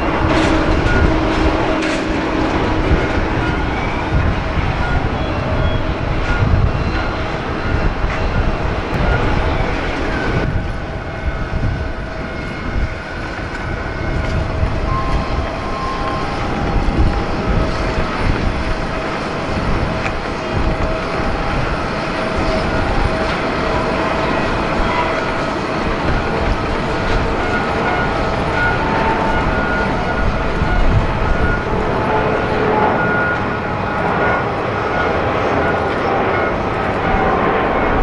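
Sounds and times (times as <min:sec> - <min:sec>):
jet engines rumbling: 0:00.0 - 0:38.0.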